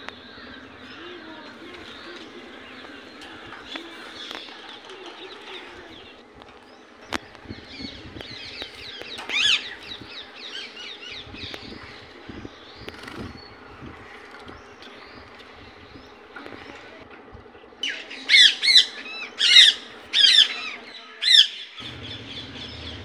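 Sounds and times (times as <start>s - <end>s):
parakeets chattering: 17.8s - 23.0s.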